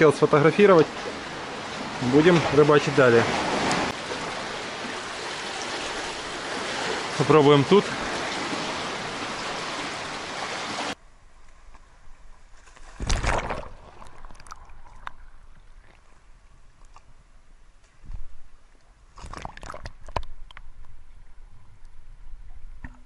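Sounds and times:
muffled underwater surf sloshing: 0.0s - 11.0s
surf washing over rocks: 0.0s - 11.0s.

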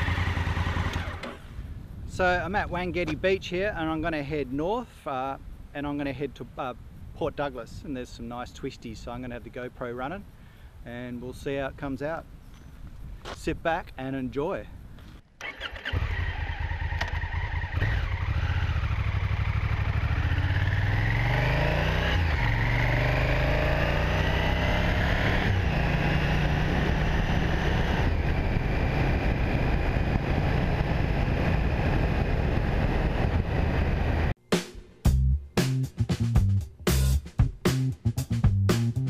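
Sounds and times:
motorcycle engine accelerating: 0.0s - 1.6s, 15.4s - 34.3s.

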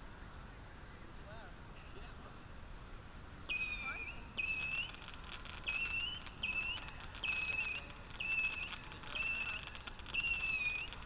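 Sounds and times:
whistling missiles: 3.5s - 11.0s.

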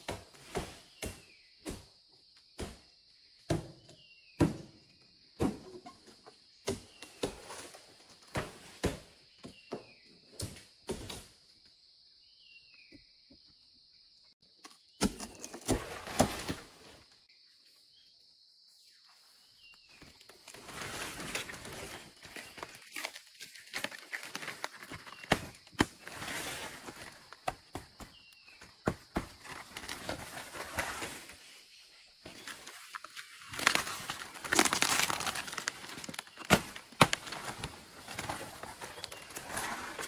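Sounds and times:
sharp knocks and thuds: 2.6s - 7.6s, 27.4s - 29.6s
rustling: 32.2s - 40.0s.

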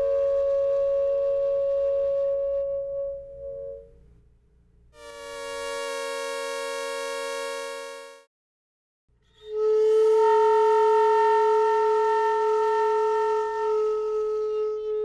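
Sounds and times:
woodwind multiphonic: 0.0s - 4.0s, 5.0s - 8.3s, 9.3s - 15.0s
synthesized steady tone: 5.0s - 8.3s.

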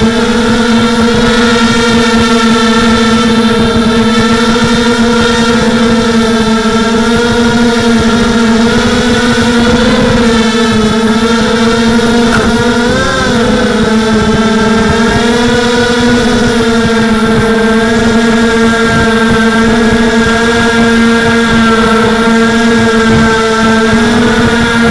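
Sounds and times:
drone propellers whining: 0.0s - 24.9s.

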